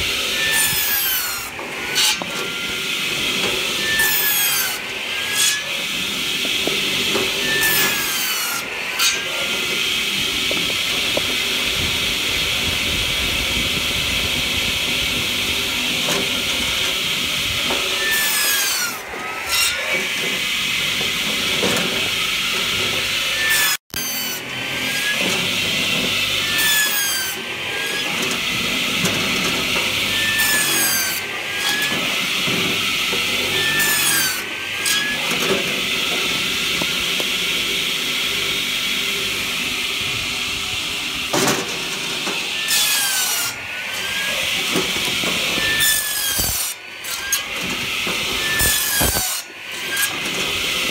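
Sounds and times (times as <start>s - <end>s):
circular saw cutting logs: 0.0s - 50.9s.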